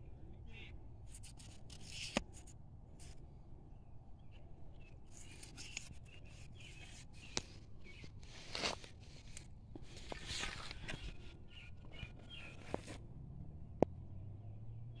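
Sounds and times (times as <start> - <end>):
hands scraping gravelly soil: 5.1 - 13.0.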